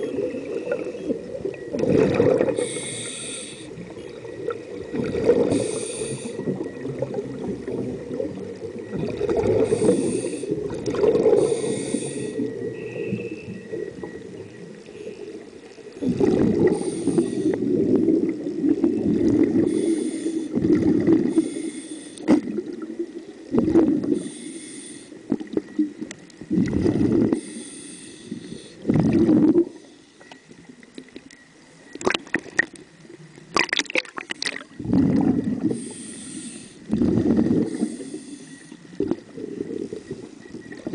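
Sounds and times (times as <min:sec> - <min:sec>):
gurgling exhaled bubbles: 0:00.0 - 0:21.5, 0:22.3 - 0:24.2, 0:25.3 - 0:27.5, 0:28.8 - 0:29.8, 0:33.5 - 0:36.0, 0:36.9 - 0:38.1, 0:38.9 - 0:40.9
regulator hissing inhalations: 0:02.5 - 0:03.8, 0:05.5 - 0:06.4, 0:09.6 - 0:10.6, 0:11.4 - 0:13.8, 0:16.7 - 0:17.7, 0:19.6 - 0:20.6, 0:21.2 - 0:22.3, 0:24.1 - 0:25.2, 0:27.4 - 0:28.9, 0:35.7 - 0:36.9, 0:37.6 - 0:38.9.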